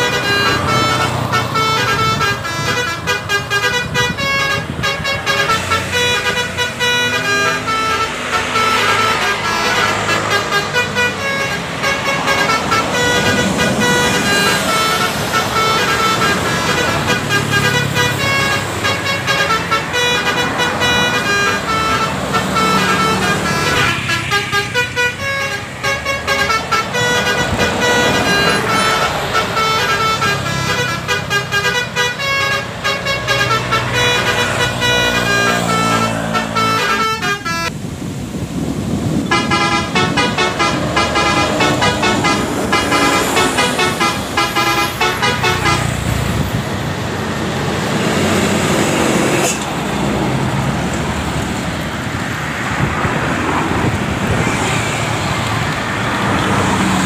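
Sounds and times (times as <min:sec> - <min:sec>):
bus horns playing tunes: 0:00.0 - 0:37.7, 0:39.1 - 0:46.7
passing traffic: 0:00.0 - 0:57.0.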